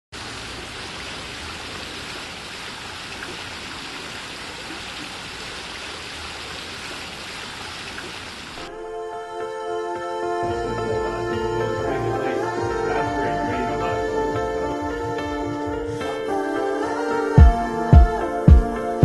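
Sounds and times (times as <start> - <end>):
fountain water splashing: 0.2 - 8.7.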